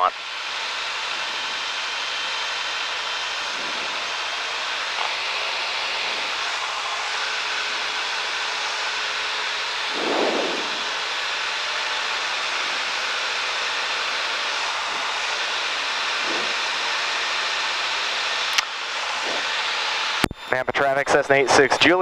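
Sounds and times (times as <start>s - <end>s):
aircraft cabin engine hiss: 3.2s - 8.9s, 9.9s - 13.7s, 16.1s - 17.2s.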